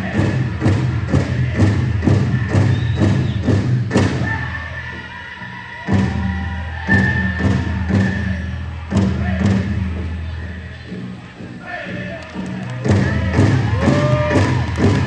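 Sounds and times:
big drum beating: 0:00.0 - 0:04.4, 0:12.8 - 0:15.0.

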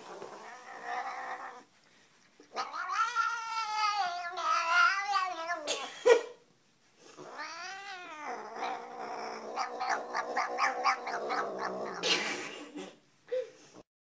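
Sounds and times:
cat yowling: 0:02.6 - 0:05.7, 0:07.3 - 0:12.0.

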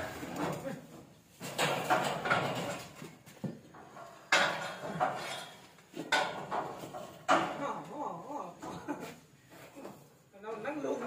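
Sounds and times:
metal cattle crush clanking: 0:01.4 - 0:07.8.

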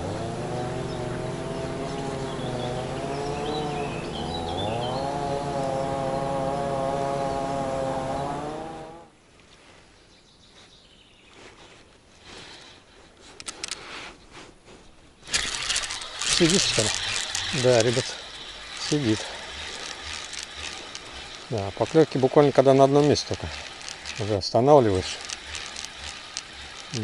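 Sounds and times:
engine droning: 0:00.0 - 0:09.1, 0:15.1 - 0:27.0
small clicks: 0:13.2 - 0:13.9, 0:15.2 - 0:27.0
fishing reel whirring: 0:13.4 - 0:14.0, 0:15.2 - 0:27.0.

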